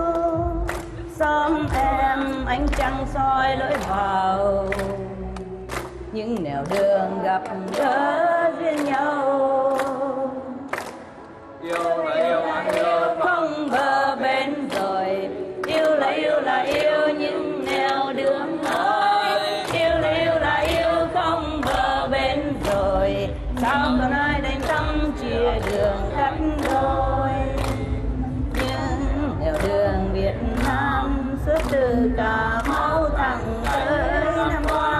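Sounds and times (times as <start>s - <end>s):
deep bass: 0.0s - 5.2s, 21.9s - 34.9s
music with steady beat: 0.0s - 9.0s, 13.6s - 34.9s
voices singing: 6.6s - 10.9s, 11.6s - 34.9s.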